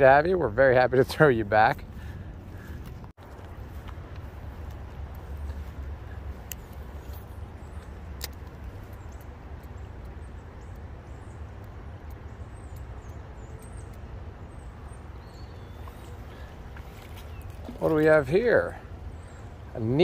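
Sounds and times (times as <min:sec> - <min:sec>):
distant road traffic rumble: 0:00.0 - 0:20.0
sharp clicks: 0:06.4 - 0:10.9.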